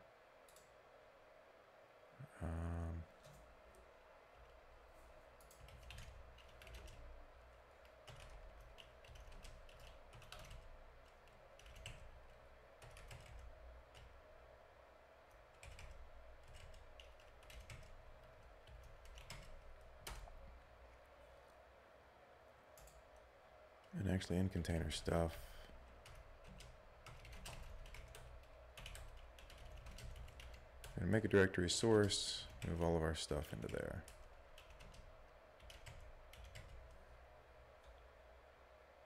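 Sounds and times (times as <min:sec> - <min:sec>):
low steady hum: 0:00.0 - 0:39.0
typing on computer keyboard: 0:05.4 - 0:07.2, 0:07.8 - 0:14.1, 0:15.5 - 0:20.3, 0:26.0 - 0:31.0, 0:33.6 - 0:37.0.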